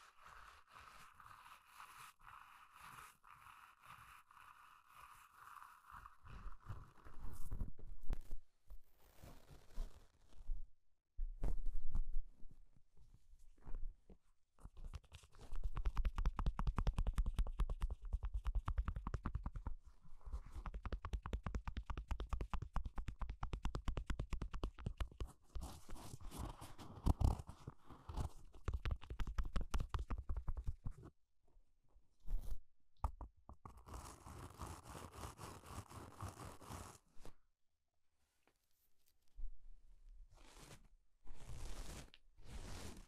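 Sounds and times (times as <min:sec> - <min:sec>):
brush bristles scratching blanket: 0:00.0 - 0:07.2, 0:33.8 - 0:37.3, 0:40.4 - 0:43.0.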